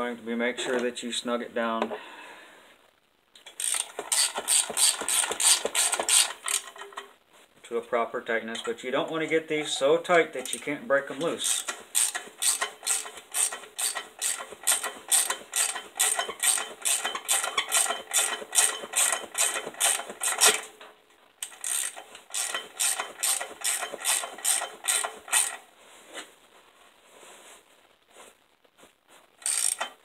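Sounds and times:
socket ratchet clicking: 0:03.5 - 0:06.7, 0:11.4 - 0:20.6, 0:21.4 - 0:25.6, 0:29.4 - 0:30.0.

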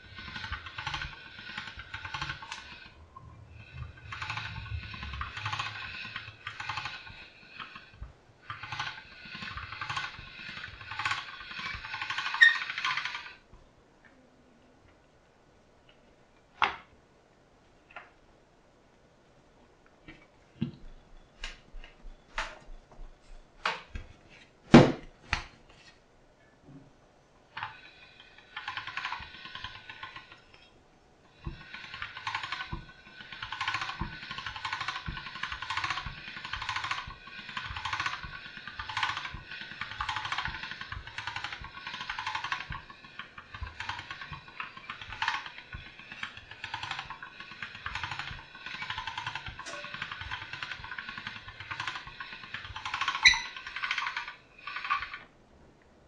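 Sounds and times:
pasta machine rollers whirring: 0:00.0 - 0:13.6, 0:27.4 - 0:55.4.

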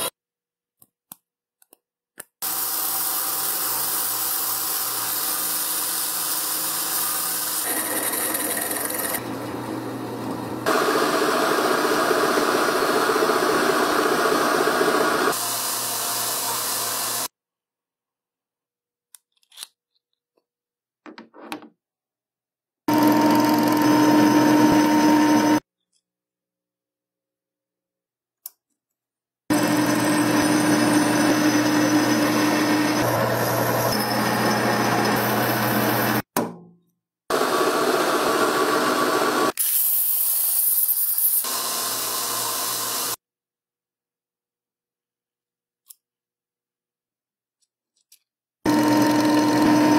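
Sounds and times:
metal parts clicking: 0:19.2 - 0:20.2
metal lathe humming: 0:22.9 - 0:25.6, 0:29.5 - 0:36.2, 0:48.7 - 0:49.9.

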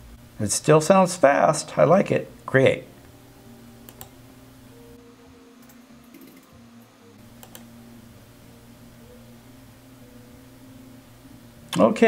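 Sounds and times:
low steady hum: 0:00.0 - 0:12.0
computer keyboard keystrokes: 0:07.4 - 0:07.7.

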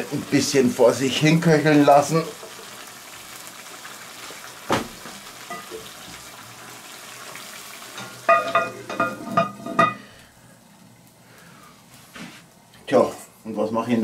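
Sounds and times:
stew sizzling in a pot: 0:00.0 - 0:14.0
knock: 0:04.7 - 0:05.0
cast-iron lid clanking: 0:08.0 - 0:10.0.

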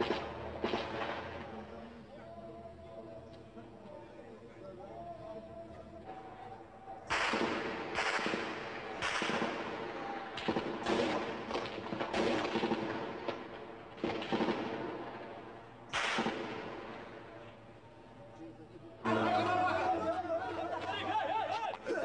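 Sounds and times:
gunfire bursts: 0:00.0 - 0:01.6, 0:07.1 - 0:17.3.

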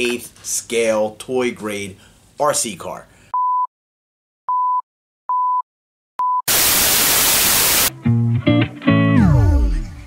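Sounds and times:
short beeps: 0:04.5 - 0:05.6
loud static hiss: 0:06.5 - 0:07.9.

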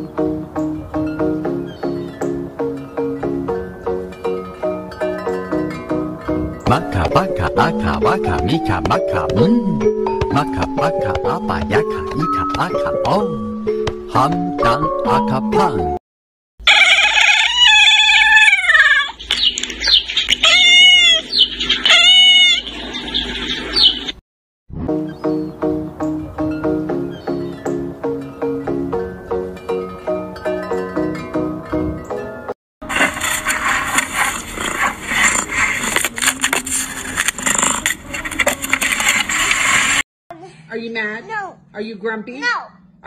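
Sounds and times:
kitten meowing: 0:16.7 - 0:19.5, 0:20.4 - 0:22.7
kitten high chirps: 0:16.7 - 0:22.7
dense scraping and rustling: 0:32.8 - 0:40.0.

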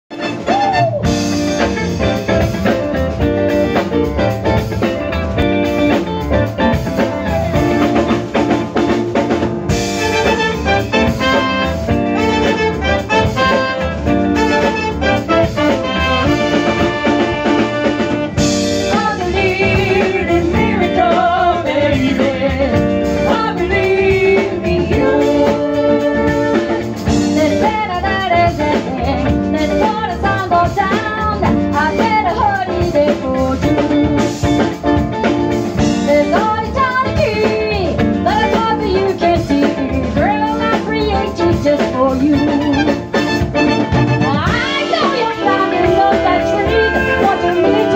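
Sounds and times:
live band playing upbeat song: 0:00.1 - 0:47.9
woman singing: 0:18.8 - 0:34.3, 0:36.0 - 0:43.0, 0:44.2 - 0:47.9.

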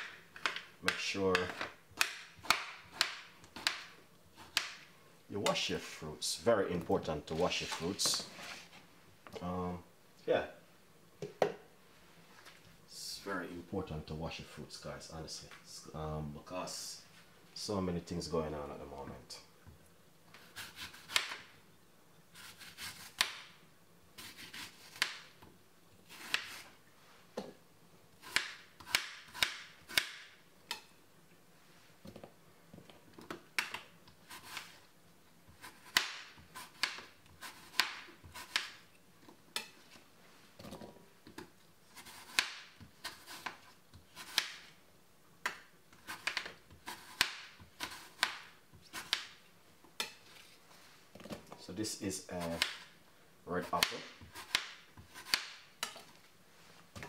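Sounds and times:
knife chopping on a board: 0:00.4 - 0:04.8, 0:20.6 - 0:21.4, 0:35.6 - 0:38.8, 0:42.0 - 0:43.6, 0:45.4 - 0:49.4, 0:53.7 - 0:56.0.

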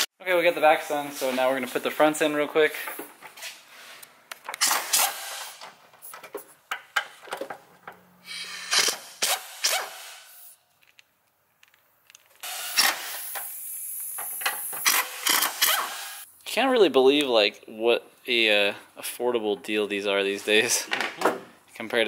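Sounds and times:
steady hiss: 0:12.5 - 0:15.3.

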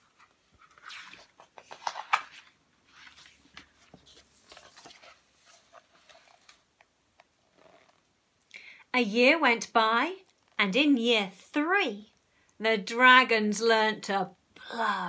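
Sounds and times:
book pages rustling: 0:00.0 - 0:08.1.

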